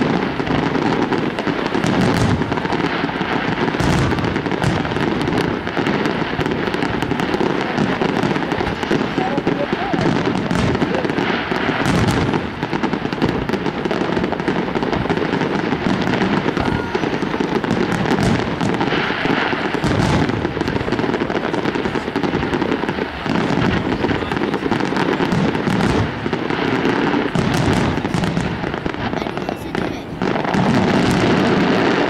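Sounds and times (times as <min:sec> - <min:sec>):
fireworks bursting: 0:00.0 - 0:32.0.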